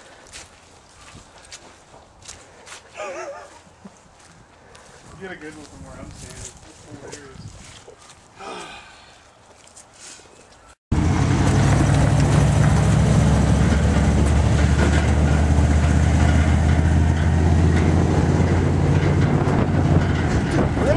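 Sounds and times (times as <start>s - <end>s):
snowmobile engine drone: 10.9s - 20.9s.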